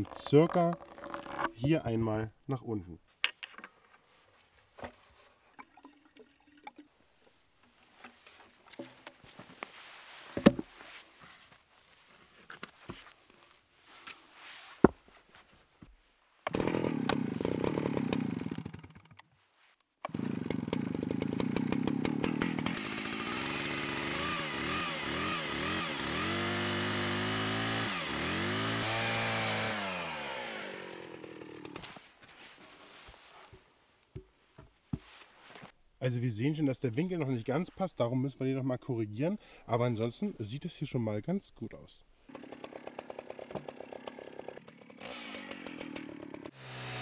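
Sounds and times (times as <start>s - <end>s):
chainsaw cutting wood: 0.0s - 1.6s, 16.5s - 19.2s, 20.0s - 32.0s, 42.3s - 47.0s
knocks and handling clatter: 3.2s - 5.8s, 6.7s - 9.7s.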